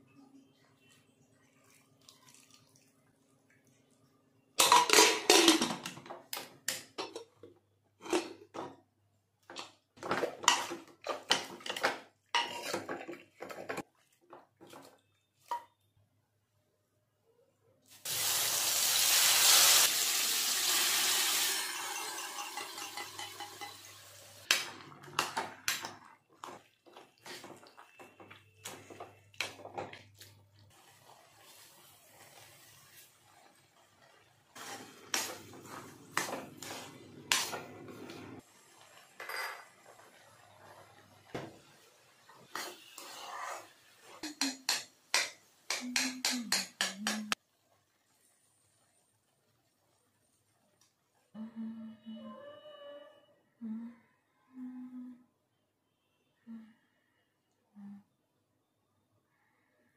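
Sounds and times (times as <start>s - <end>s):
spoon scraping metal pots: 9.5s - 15.6s, 21.6s - 31.6s, 33.3s - 38.4s, 42.4s - 47.4s.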